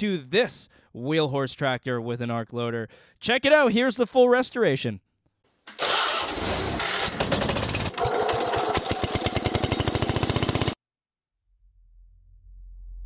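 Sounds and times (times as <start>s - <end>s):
tractor engine running: 5.8s - 10.8s.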